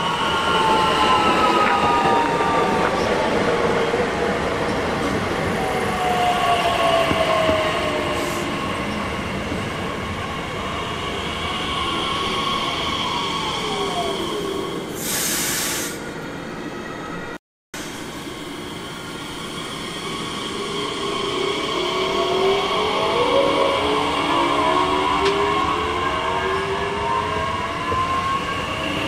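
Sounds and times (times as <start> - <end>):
train rumbling past: 0.0 - 29.0
short hiss: 15.0 - 16.0.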